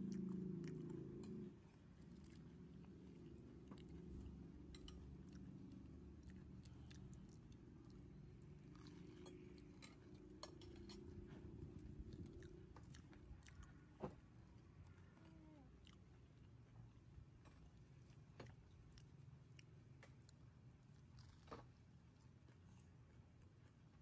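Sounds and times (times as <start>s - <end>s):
low room hum: 0.0s - 24.0s
people chewing: 0.0s - 24.0s
cutlery clicking on plates: 9.1s - 11.2s.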